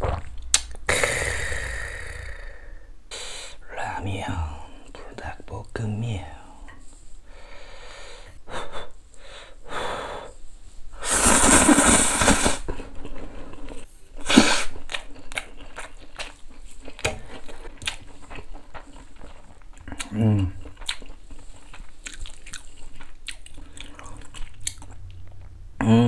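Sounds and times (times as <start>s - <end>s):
person slurping noodles: 11.0s - 13.6s, 14.2s - 14.8s
wet chewing: 14.6s - 25.5s.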